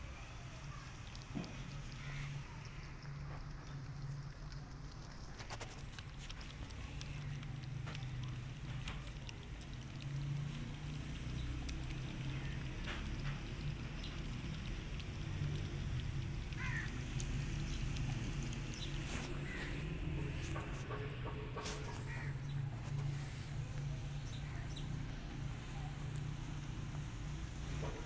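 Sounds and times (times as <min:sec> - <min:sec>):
cat lapping and chewing: 0:00.0 - 0:28.0
steady low rumble: 0:13.3 - 0:28.0.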